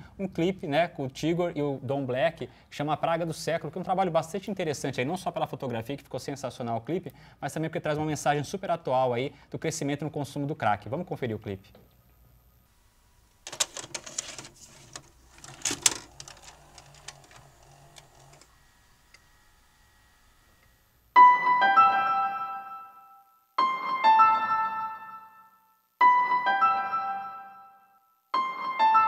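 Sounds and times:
video cassette loading clatter: 13.3s - 19.5s
piano chords: 20.4s - 23.0s.

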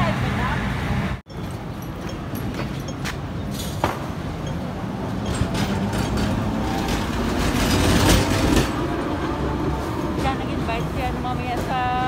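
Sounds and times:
street traffic: 0.0s - 12.0s
tram rolling on rails: 0.0s - 12.0s
tram wheels clicking: 1.3s - 12.0s.

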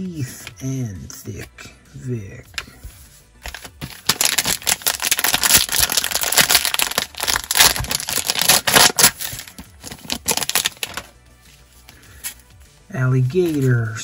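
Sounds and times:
plastic wrapper tearing and crinkling: 3.5s - 11.1s.

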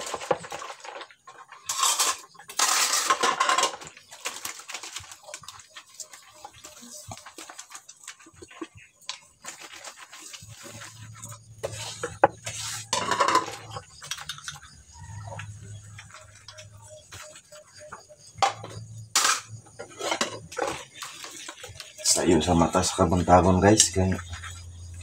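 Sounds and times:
dishes clinking and knocking: 11.6s - 16.8s, 18.4s - 21.8s.

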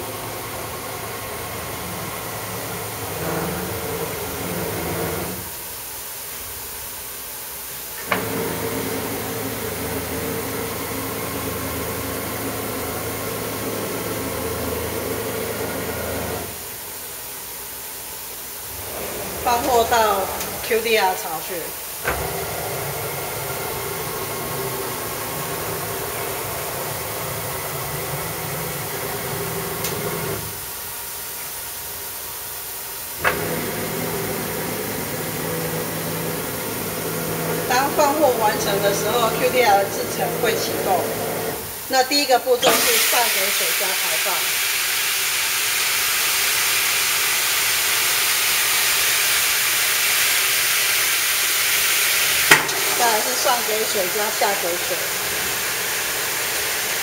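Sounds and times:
rinse water spraying: 0.0s - 5.7s, 7.8s - 17.0s, 18.4s - 32.2s, 32.9s - 57.0s
motors humming: 8.0s - 16.6s, 18.7s - 30.6s, 33.2s - 41.9s
hiss: 42.6s - 57.0s.

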